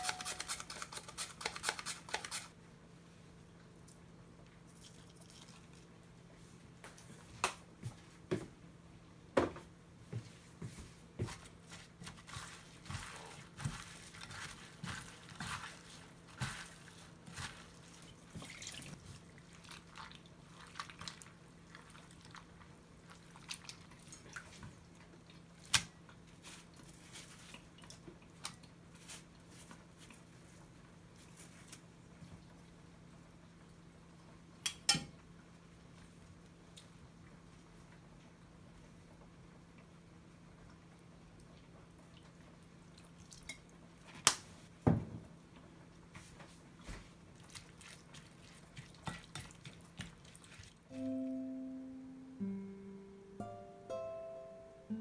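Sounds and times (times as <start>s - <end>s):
wet squishing and splashing: 12.1s - 28.7s, 42.9s - 43.5s, 47.3s - 50.9s.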